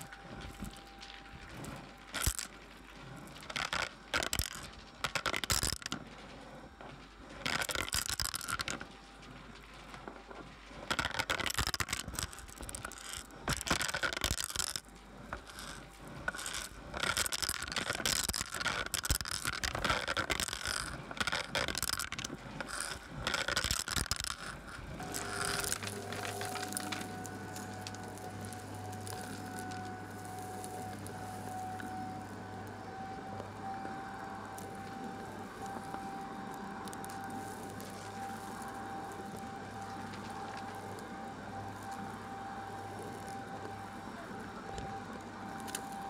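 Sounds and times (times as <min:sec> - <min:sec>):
debris rattling in vacuum wand: 0:00.0 - 0:06.0, 0:07.4 - 0:09.0, 0:10.6 - 0:42.2
vacuum motor drone: 0:19.4 - 0:46.0
vacuum sucking on carpet: 0:24.9 - 0:46.0.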